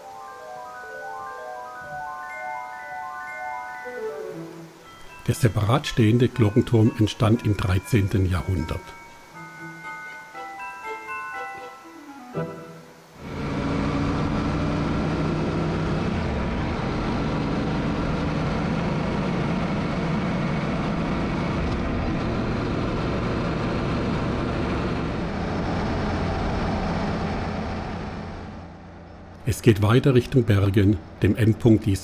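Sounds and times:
wind and road noise: 0:12.9 - 0:32.0
motorcycle engine: 0:13.2 - 0:29.4.

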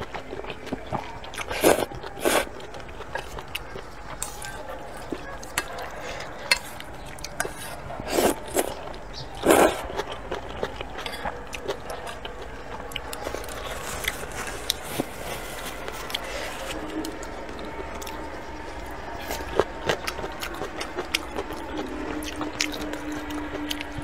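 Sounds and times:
chewing and mouth sounds: 0:00.0 - 0:24.0
slurping noodles: 0:01.4 - 0:02.6, 0:06.1 - 0:08.7, 0:09.4 - 0:10.1, 0:13.2 - 0:17.2.

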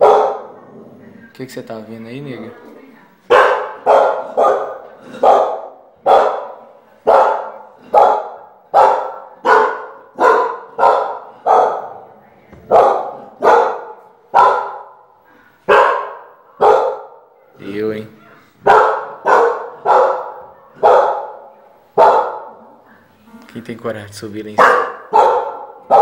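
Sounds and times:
dog barking: 0:00.0 - 0:00.7, 0:03.3 - 0:12.0, 0:12.7 - 0:15.1, 0:15.7 - 0:17.5, 0:18.2 - 0:22.6, 0:24.6 - 0:26.0.

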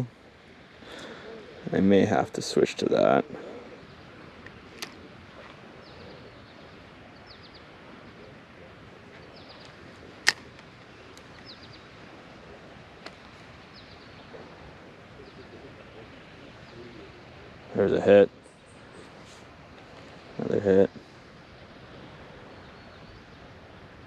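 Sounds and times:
background hiss: 0:00.0 - 0:24.0
songbird chirping: 0:00.0 - 0:24.0
sharp click: 0:10.2 - 0:11.4.

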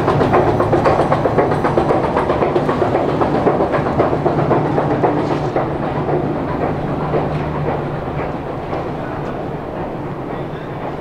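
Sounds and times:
metro train wheels clattering: 0:00.0 - 0:11.0.

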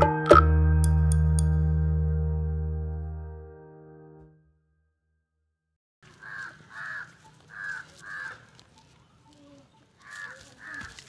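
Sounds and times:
crows cawing: 0:06.1 - 0:08.6, 0:10.0 - 0:11.0.

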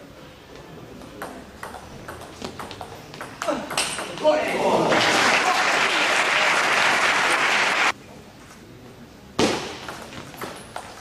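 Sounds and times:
crowd applauding: 0:04.8 - 0:07.9.

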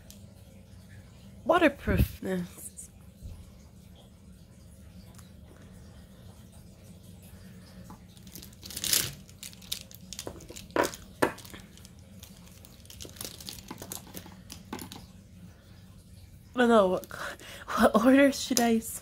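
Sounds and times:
pens rustling: 0:07.9 - 0:15.1
pens rattling: 0:08.1 - 0:15.1
plastic pens clicking together: 0:08.2 - 0:15.0, 0:18.5 - 0:18.8.

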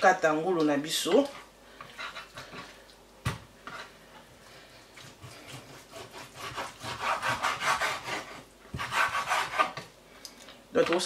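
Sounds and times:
knife sawing through meat: 0:05.2 - 0:09.8.

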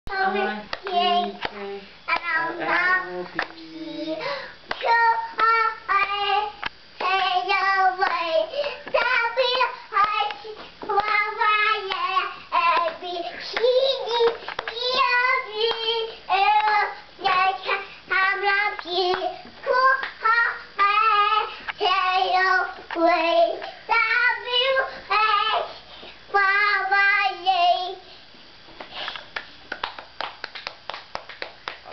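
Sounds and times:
toddler singing: 0:00.1 - 0:04.2, 0:04.8 - 0:25.7.

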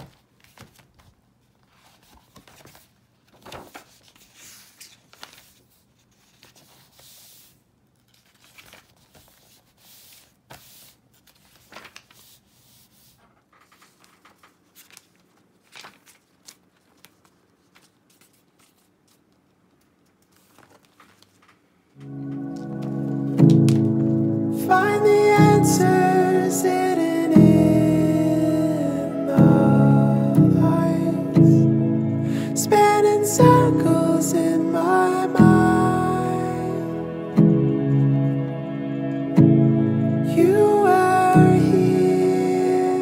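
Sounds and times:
paper pages rustling: 0:00.0 - 0:24.3.

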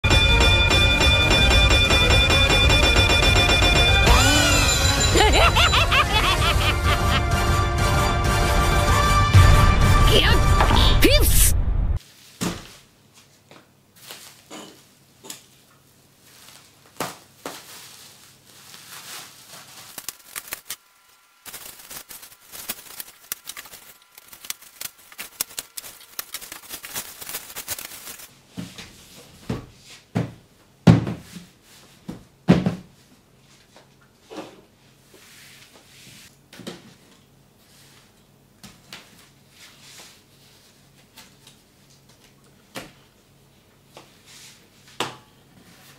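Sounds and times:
bubble wrap crinkling: 0:16.2 - 0:20.8, 0:21.5 - 0:28.3.

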